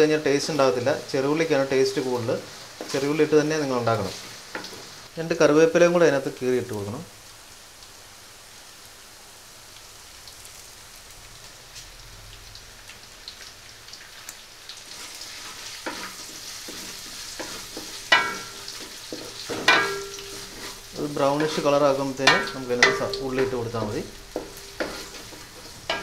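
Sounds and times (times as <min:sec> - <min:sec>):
food sizzling in hot oil: 0:00.0 - 0:26.0
wooden spatula scraping a pan: 0:01.6 - 0:05.1, 0:14.8 - 0:26.0.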